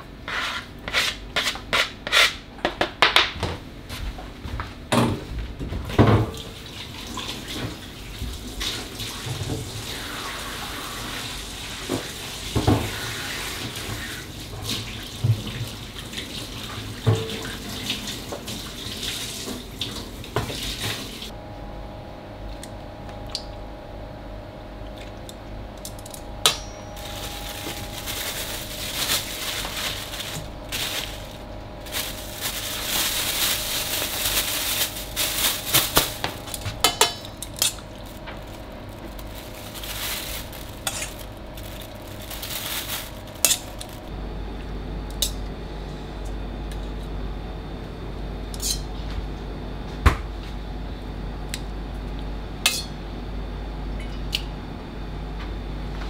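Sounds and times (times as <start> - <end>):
kitchen hum: 4.8 - 54.6
tongs clinking on steel bowls: 25.8 - 27.4, 36.5 - 37.9, 40.8 - 41.2, 43.4 - 43.9, 52.6 - 53.0
plastic wrap and paper rustling: 27.0 - 44.1.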